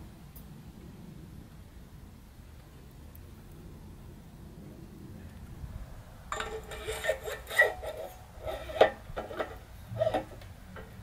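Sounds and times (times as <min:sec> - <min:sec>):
metal clinking and knocking: 0:06.3 - 0:06.9.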